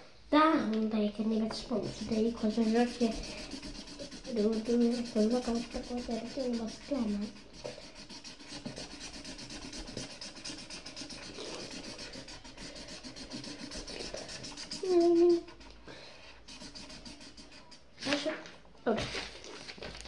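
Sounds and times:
pen scribbling on paper: 1.6 - 15.8, 16.4 - 18.2.

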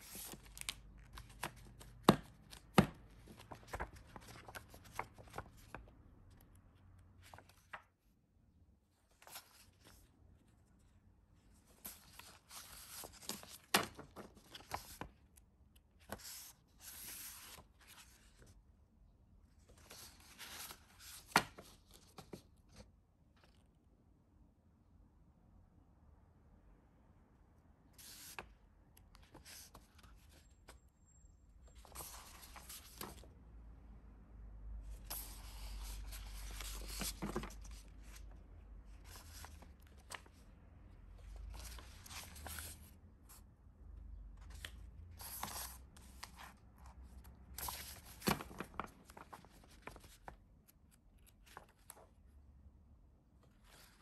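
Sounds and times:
paper packaging rustling and tearing: 47.6 - 50.2.

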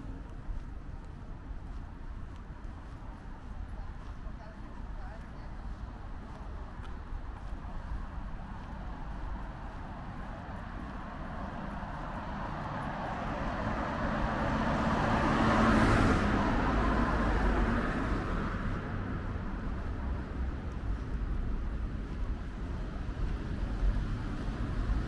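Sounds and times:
vehicle passing by: 9.1 - 20.3.

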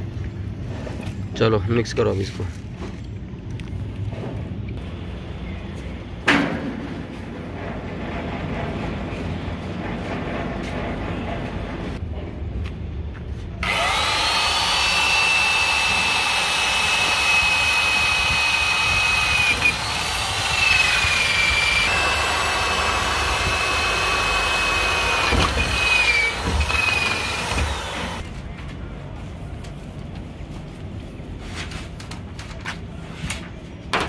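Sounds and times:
electric drill whining into steel: 13.6 - 28.2.

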